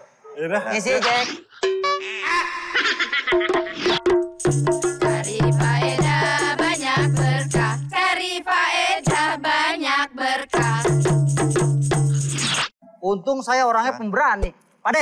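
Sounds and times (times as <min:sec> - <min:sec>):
frame drum beats: 0:03.4 - 0:07.9, 0:10.5 - 0:12.2
women singing: 0:04.9 - 0:11.2.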